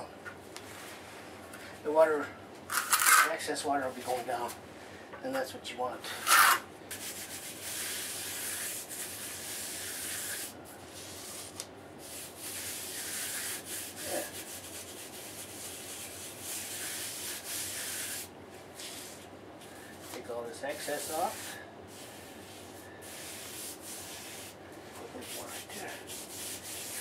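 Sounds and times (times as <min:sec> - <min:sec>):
gritty rasping of mortar smoothing: 0:02.7 - 0:03.3, 0:06.2 - 0:19.2, 0:20.7 - 0:27.0.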